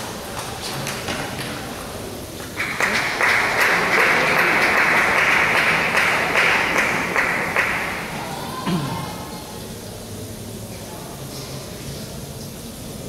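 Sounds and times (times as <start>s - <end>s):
spectators applauding: 0.0s - 9.4s.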